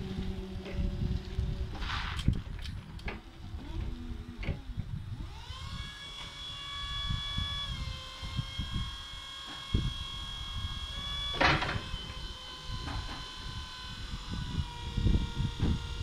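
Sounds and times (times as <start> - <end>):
hydraulic pump motor whining: 0.0 - 16.0
loud burst of noise: 5.3 - 15.9.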